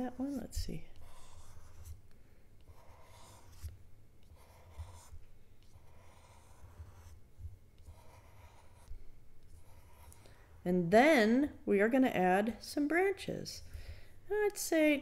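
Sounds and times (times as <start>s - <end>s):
marker scratching on plastic film: 0.0s - 2.0s, 2.6s - 7.2s, 7.8s - 10.2s.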